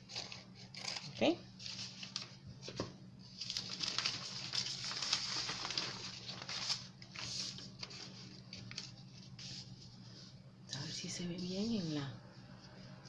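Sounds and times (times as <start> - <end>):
paper rustling and sliding: 1.6 - 10.4.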